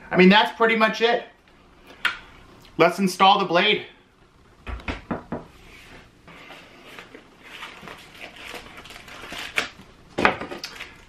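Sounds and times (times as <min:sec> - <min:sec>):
cardboard and plastic bag crinkling: 0:06.9 - 0:11.0.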